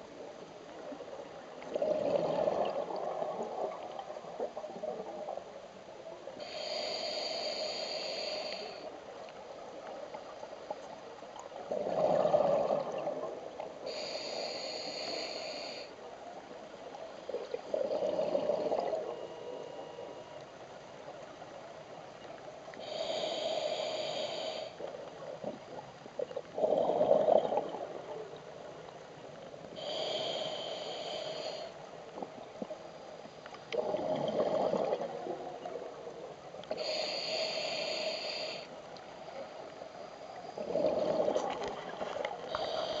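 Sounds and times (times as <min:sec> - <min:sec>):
regulator inhalation hiss: 0:06.4 - 0:08.8, 0:13.9 - 0:15.9, 0:36.7 - 0:38.7, 0:42.5 - 0:43.0.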